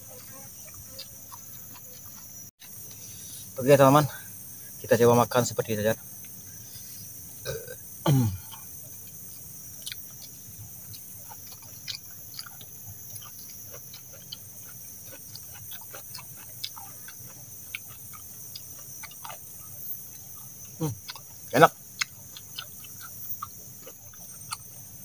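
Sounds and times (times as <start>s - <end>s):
crickets chirring: 0.0s - 25.0s
chewing clicks and smacks: 0.2s - 2.8s, 9.8s - 19.5s, 20.1s - 24.8s.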